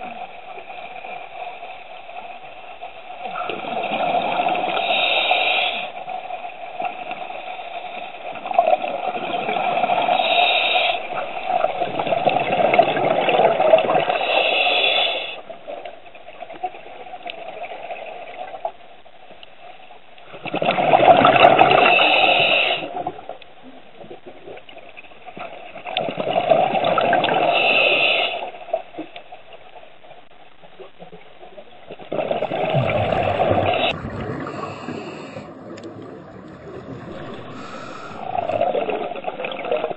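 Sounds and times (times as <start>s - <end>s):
scuba regulator exhaust bubbles: 32.1s - 39.9s.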